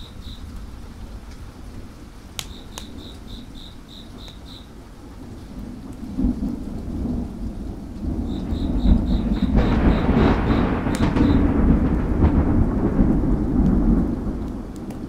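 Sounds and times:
rain hiss: 0:00.0 - 0:15.0
wood fire crackles: 0:00.0 - 0:15.0
thunder rolling: 0:05.1 - 0:15.0
high even chirping: 0:08.2 - 0:11.4.

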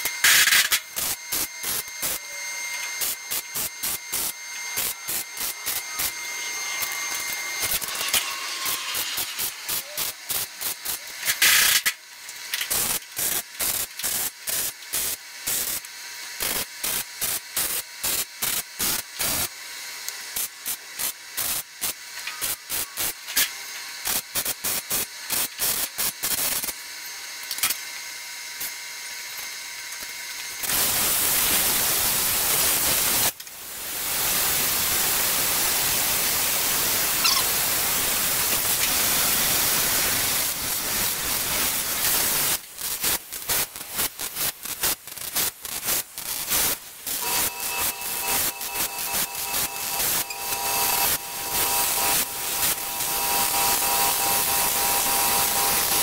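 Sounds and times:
welding arc crackling: 0:00.0 - 0:27.9, 0:28.5 - 0:56.0
steady hiss: 0:30.6 - 0:56.0.

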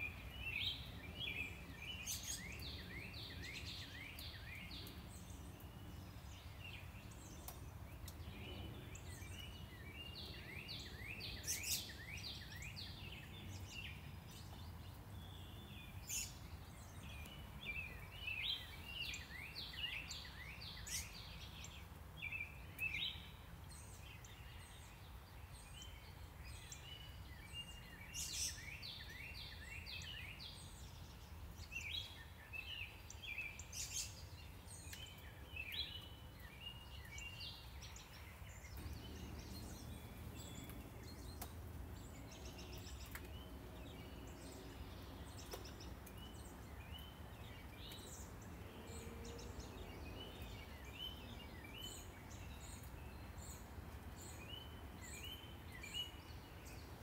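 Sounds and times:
songbirds chirping and singing: 0:00.0 - 0:57.0
distant traffic rumble: 0:37.1 - 0:57.0.

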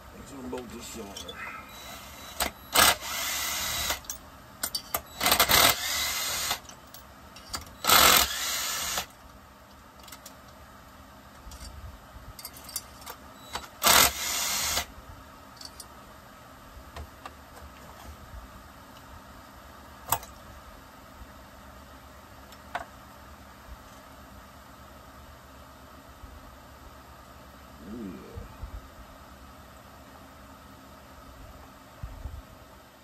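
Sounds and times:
cordless power driver bursts: 0:01.8 - 0:04.0, 0:05.2 - 0:06.6, 0:07.8 - 0:09.1, 0:13.5 - 0:14.9.

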